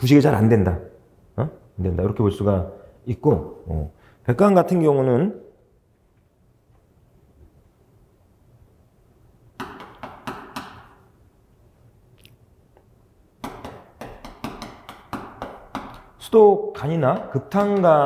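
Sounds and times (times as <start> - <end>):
chalk tapping and scratching on chalkboard: 9.6 - 11.0, 13.4 - 18.0.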